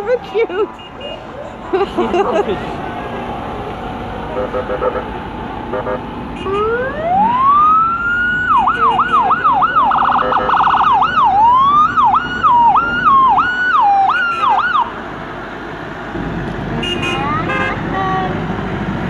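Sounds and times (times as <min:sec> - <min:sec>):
electronic vehicle siren: 0:05.7 - 0:14.9.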